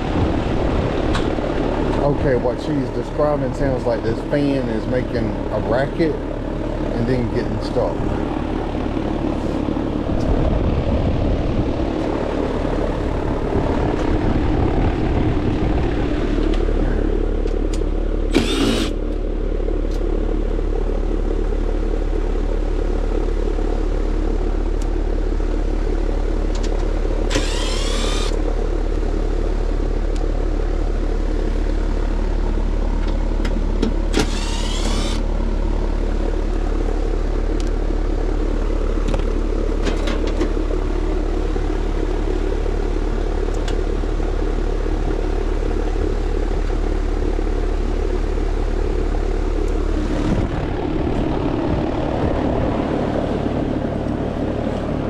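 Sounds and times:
air conditioner unit humming: 0.0s - 55.0s
impact driver spinning up: 18.3s - 19.0s, 27.3s - 28.4s, 34.1s - 35.3s.

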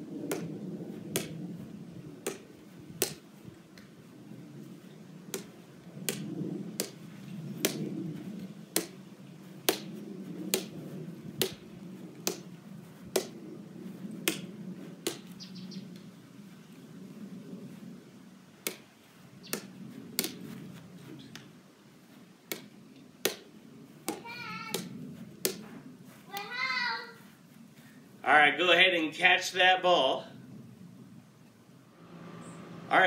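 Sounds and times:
ball tapping off a paddle: 0.3s - 0.5s, 1.1s - 1.4s, 7.6s - 7.9s, 8.8s - 9.0s, 12.2s - 12.5s, 13.1s - 13.4s, 14.2s - 15.3s, 19.5s - 20.4s, 22.5s - 23.5s, 24.1s - 25.6s.

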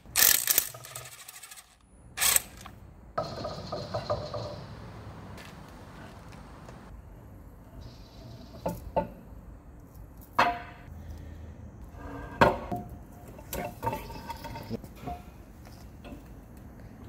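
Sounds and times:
metal parts clanking: 0.0s - 2.7s, 13.4s - 15.3s.

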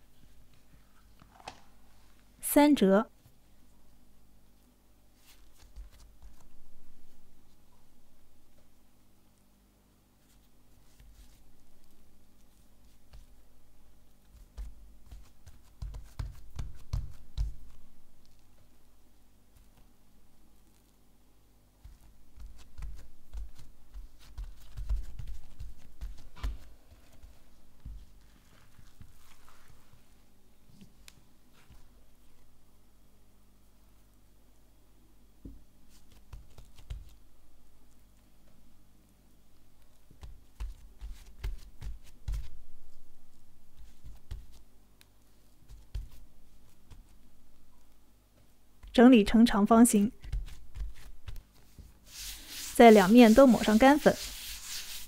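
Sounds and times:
hands patting dough: 5.1s - 7.7s, 10.2s - 18.8s, 21.8s - 29.9s, 35.4s - 38.7s, 39.6s - 55.0s.

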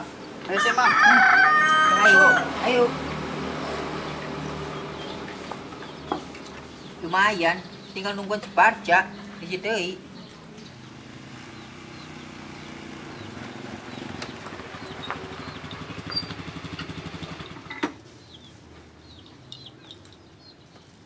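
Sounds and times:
motorcycle engine idling: 10.0s - 19.2s
engine cut-off knock: 11.9s - 18.0s.

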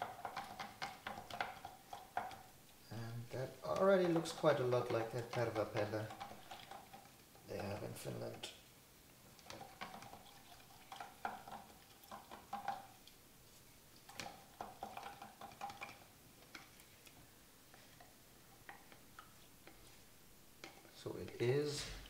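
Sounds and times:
stick scraping plastic tub: 3.2s - 8.5s.

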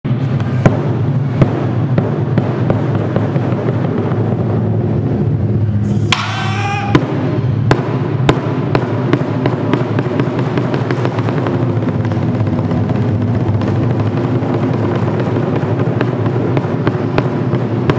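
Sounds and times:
person shouting: 6.1s - 7.1s
taiko drums playing: 6.1s - 17.9s.

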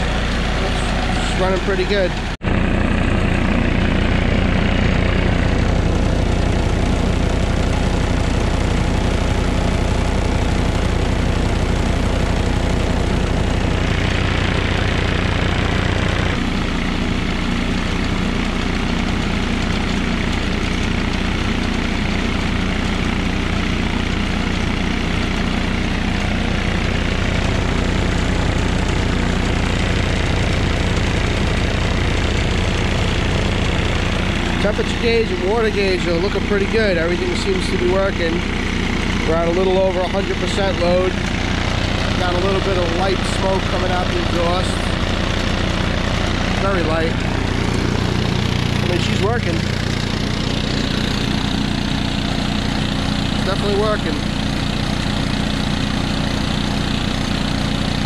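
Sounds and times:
diesel generator running: 0.0s - 58.0s.

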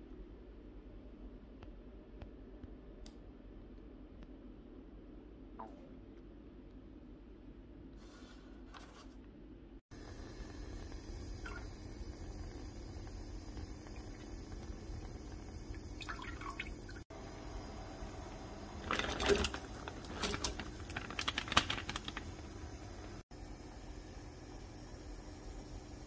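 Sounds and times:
small splashes: 16.0s - 17.0s, 18.8s - 22.1s
plastic bag crinkling: 18.8s - 23.2s.

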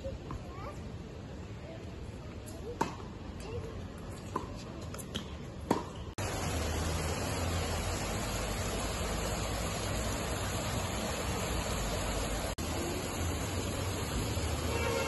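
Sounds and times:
racket hitting tennis ball: 4.3s - 6.2s
fountain water splashing: 6.2s - 15.0s.

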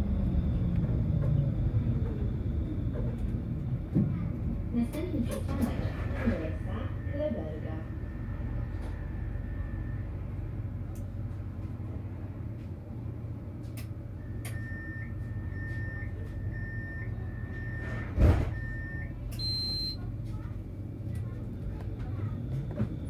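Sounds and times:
tram humming: 0.0s - 23.0s
sliding doors thumping shut: 18.1s - 18.6s
short high warning beeps: 18.6s - 20.0s.

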